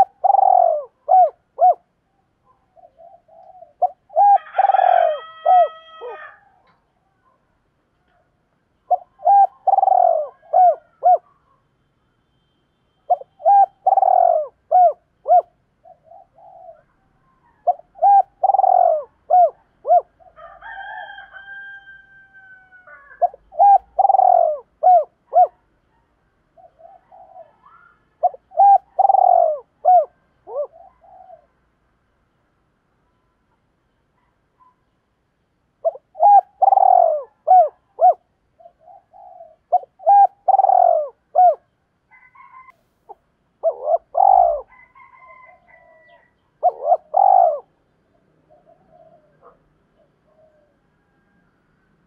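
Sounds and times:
dove cooing: 0.0 - 1.9, 2.5 - 6.8, 8.9 - 11.4, 13.1 - 20.9, 22.6 - 25.6, 26.6 - 31.6, 35.8 - 51.4.

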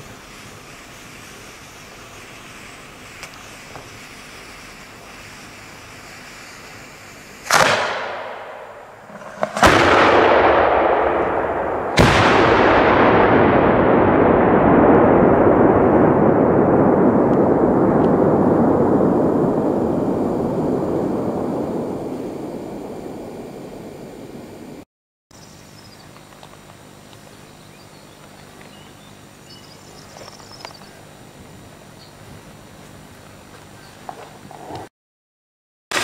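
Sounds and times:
firework bangs with rolling echo: 6.8 - 24.5.

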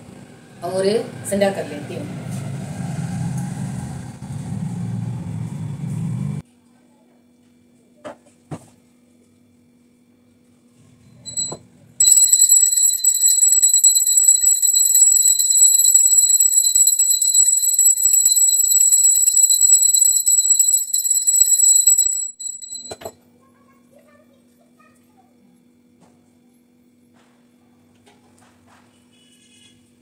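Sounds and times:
hand bell ringing rapidly: 11.3 - 23.1.

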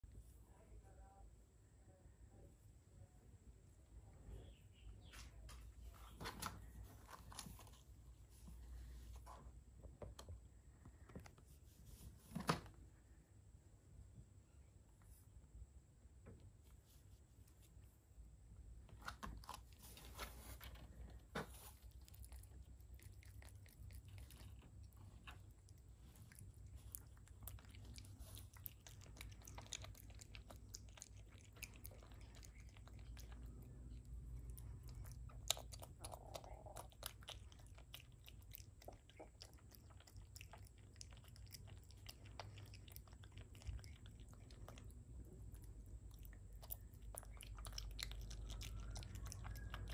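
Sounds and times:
animal chewing crunchily: 19.0 - 49.9.

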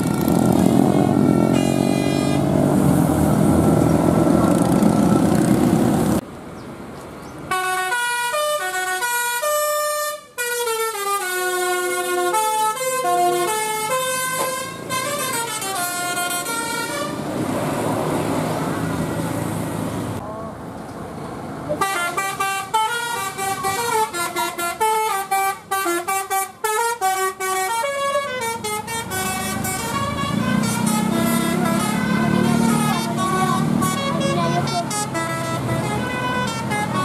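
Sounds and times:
bus engine and road noise: 0.0 - 37.0
musical air horn playing a tune: 0.8 - 2.5, 7.5 - 17.2, 21.8 - 37.0.

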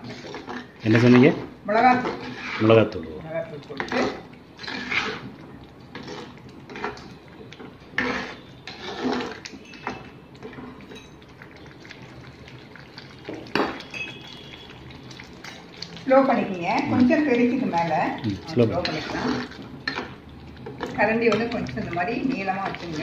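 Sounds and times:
ladle scraping earthenware pot: 0.0 - 3.0, 3.7 - 12.1, 12.9 - 23.0
stirring thick wet paste: 0.0 - 23.0.

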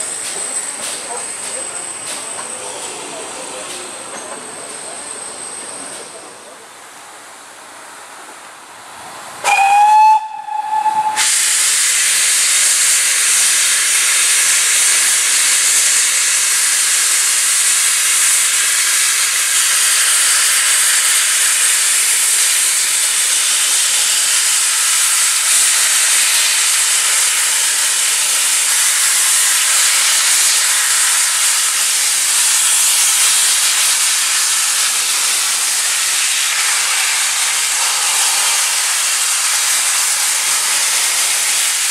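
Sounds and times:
steam hissing: 0.0 - 6.6, 9.1 - 41.9
steam locomotive whistle: 9.4 - 14.5.

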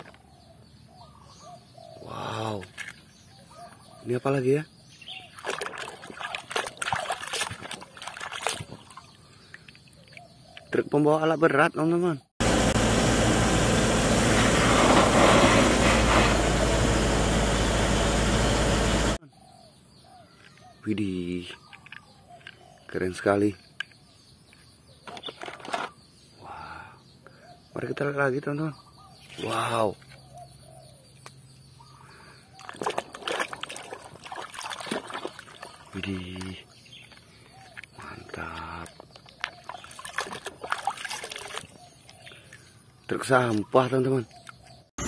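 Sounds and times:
faint bird chirps: 0.0 - 5.4, 19.2 - 33.0
water sloshing in a basin: 5.3 - 10.2, 32.6 - 42.3
diesel engine of heavy machinery: 12.4 - 19.2.

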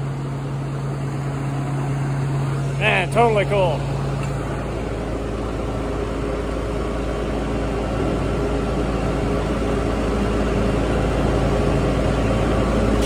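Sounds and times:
truck engine droning: 0.0 - 13.0.

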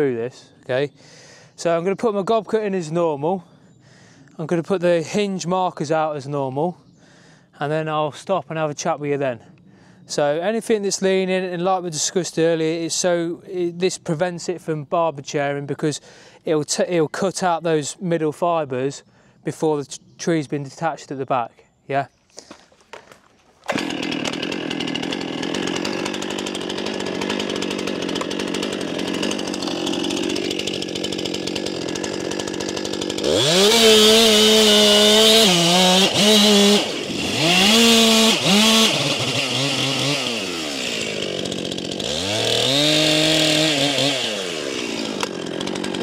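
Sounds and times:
chainsaw cutting wood: 22.4 - 46.0.

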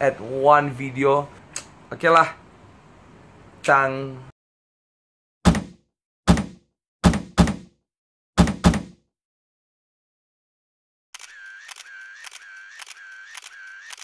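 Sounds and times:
deep sharp thuds: 5.5 - 7.7.

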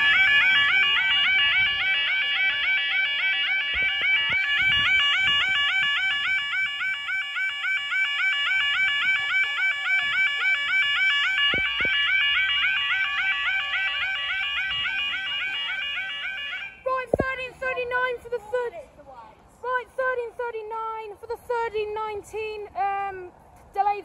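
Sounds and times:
level crossing alarm warbling: 0.0 - 17.3.

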